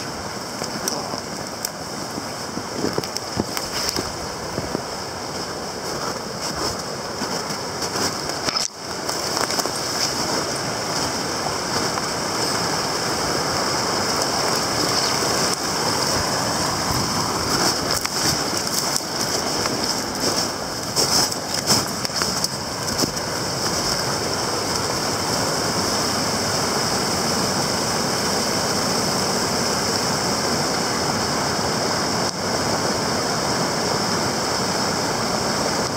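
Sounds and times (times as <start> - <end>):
water rushing through rapids: 0.0 - 35.9.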